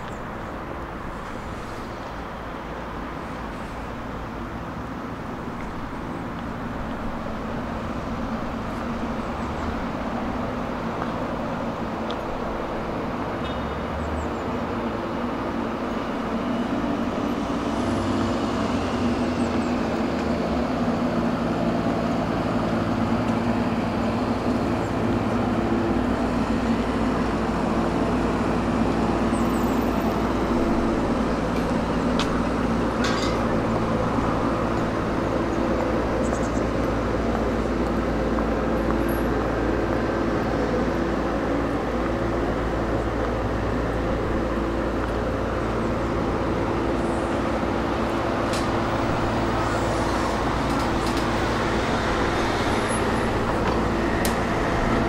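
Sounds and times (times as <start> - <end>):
low engine hum: 0.0 - 55.0
vehicles passing: 0.0 - 55.0.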